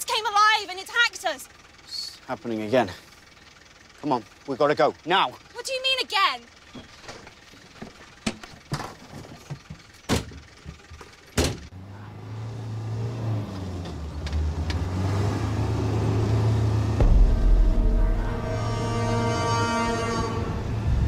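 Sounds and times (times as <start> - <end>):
car engine hum: 0.0 - 21.0
car doors slamming: 10.1 - 10.4, 11.4 - 11.7.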